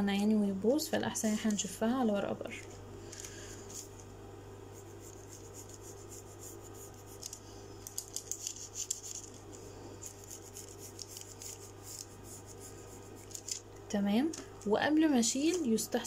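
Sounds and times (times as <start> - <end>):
steady low hum: 0.0 - 16.0
pencil scratching on paper: 4.7 - 7.4, 10.0 - 13.5.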